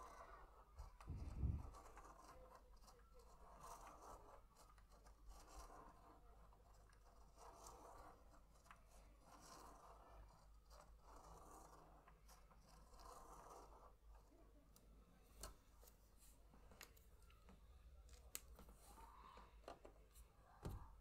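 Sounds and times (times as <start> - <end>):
pen scratching on paper: 0.0 - 14.5.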